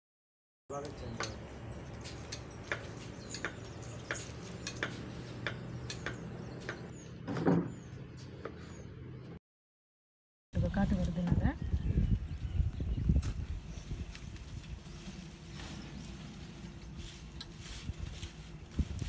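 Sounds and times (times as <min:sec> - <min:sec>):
kitchen utensils clicking and clinking: 0:01.2 - 0:06.2.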